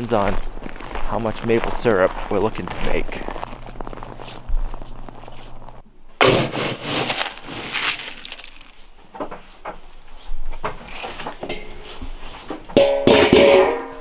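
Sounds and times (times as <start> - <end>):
pellets rattling and crunching: 6.2 - 8.9
metal can lid clanging: 11.4 - 11.8, 12.7 - 14.0.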